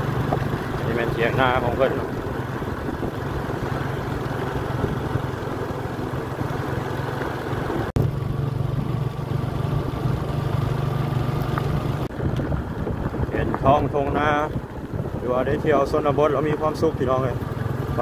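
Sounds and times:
road and wind noise: 0.0s - 18.0s
vehicle engine running: 0.0s - 18.0s.

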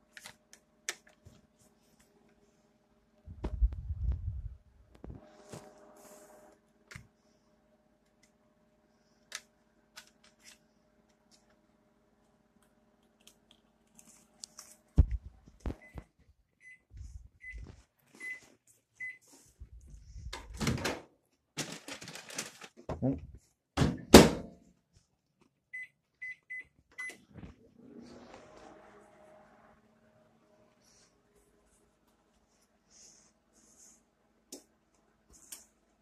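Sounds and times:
microwave beeps: 18.2s - 18.4s, 25.8s - 27.2s.

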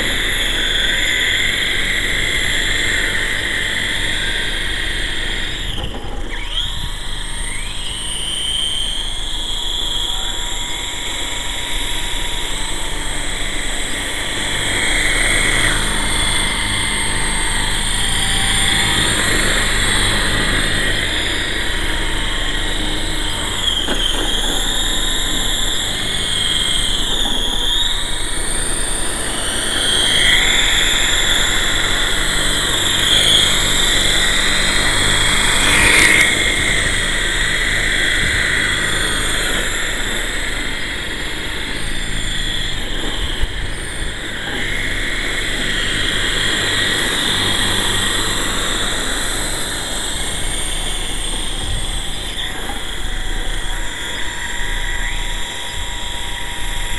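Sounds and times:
toy helicopter rotors whining: 0.0s - 56.9s.

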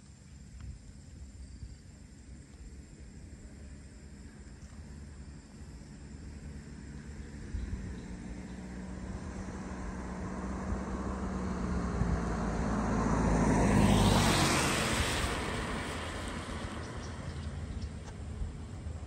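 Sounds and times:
vehicle engine hum passing: 0.0s - 19.0s.

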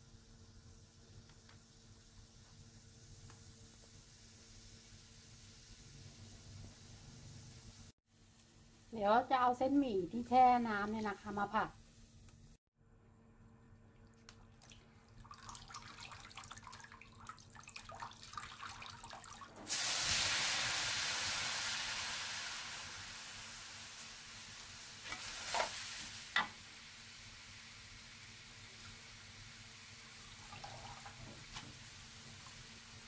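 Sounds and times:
noodles sizzling in wok: 0.0s - 8.3s, 19.7s - 33.0s.

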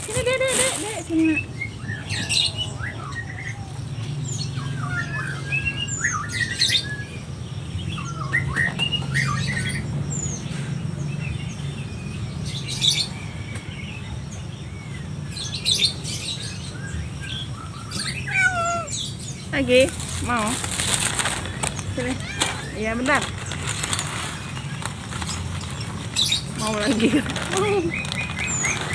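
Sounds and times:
plastic bag crinkling: 0.0s - 1.3s, 19.7s - 28.9s
small birds chirping: 0.0s - 28.9s.

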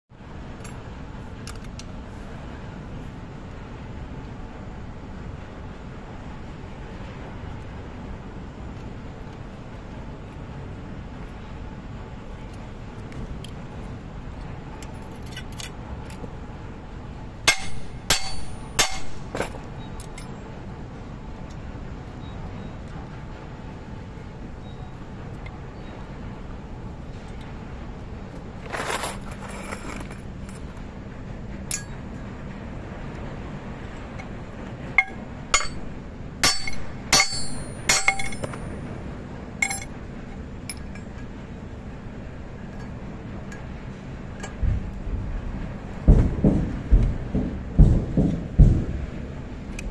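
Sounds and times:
steady low hum: 0.1s - 49.9s
steady low rumble: 0.1s - 49.9s
metallic clinks of pliers on chain: 36.5s - 38.7s, 39.6s - 39.9s.

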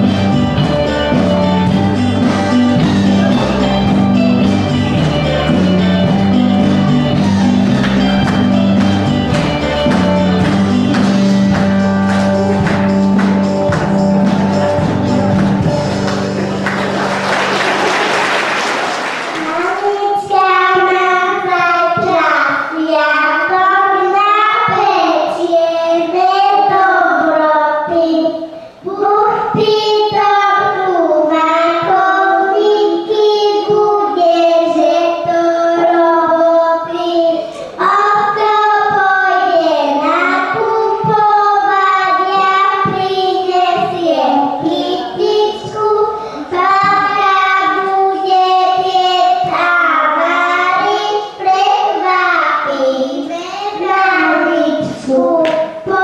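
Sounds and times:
people clapping: 2.2s - 20.0s, 55.4s - 55.8s
girl singing into a microphone: 19.4s - 56.0s.

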